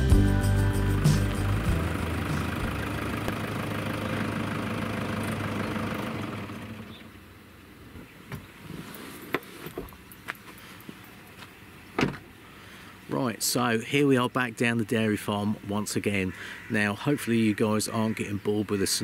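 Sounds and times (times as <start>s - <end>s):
pickup truck engine running: 0.0s - 7.7s.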